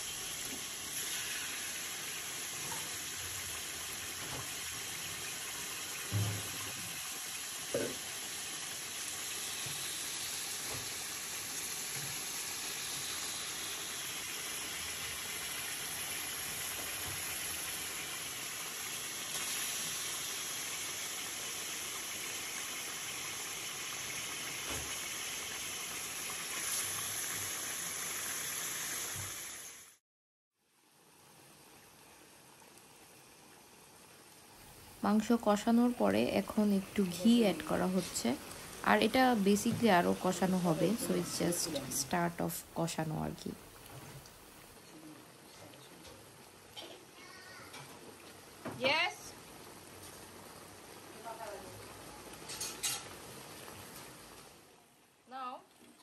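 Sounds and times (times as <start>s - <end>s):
meat sizzling in a metal pot: 0.0s - 30.0s, 34.5s - 54.6s.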